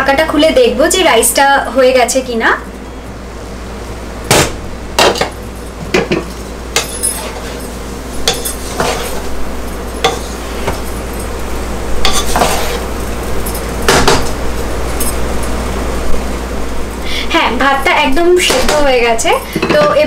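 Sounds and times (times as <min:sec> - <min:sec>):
spatula scraping rice in pot: 0:12.1 - 0:12.8.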